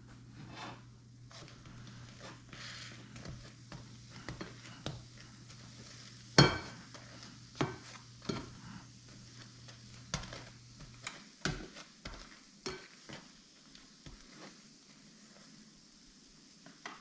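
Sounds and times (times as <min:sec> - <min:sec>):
faint sizzle of frying butter: 0:00.3 - 0:17.0
spatula knocking and scraping a pan: 0:00.4 - 0:14.6.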